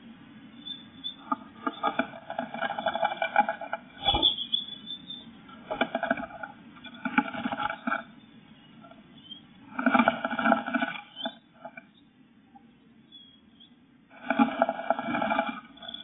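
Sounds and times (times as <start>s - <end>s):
bird feet scraping on board: 5.6s - 8.1s, 9.8s - 11.8s.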